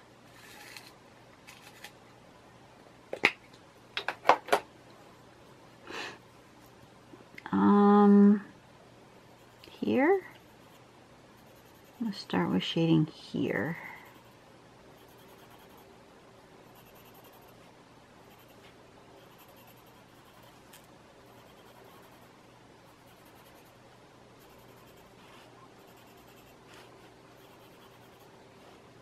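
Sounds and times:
pencil scratching on paper: 11.4s - 12.3s, 15.0s - 15.8s, 16.7s - 17.6s, 18.2s - 22.3s, 22.9s - 23.8s, 24.4s - 28.3s.

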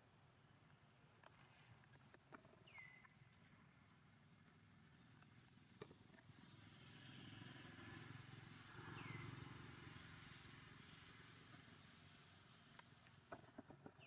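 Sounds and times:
distant vehicle rumble: 6.2s - 14.0s.

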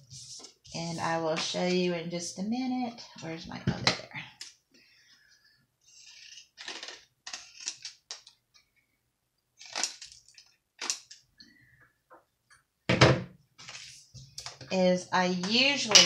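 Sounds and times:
paper rustling: 13.6s - 14.2s.

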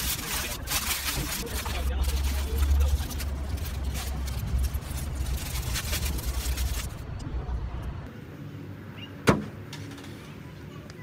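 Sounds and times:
aluminium foil crinkling: 0.0s - 7.2s
low rumble: 1.2s - 8.1s.

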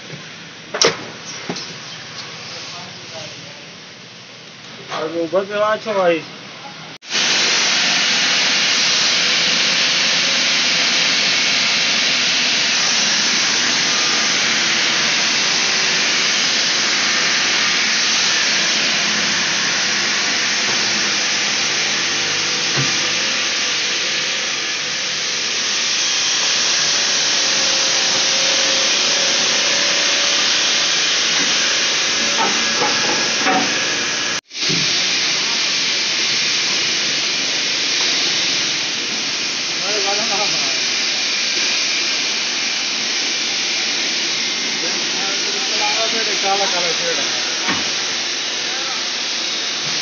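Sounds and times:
machinery hissing: 0.0s - 50.0s.

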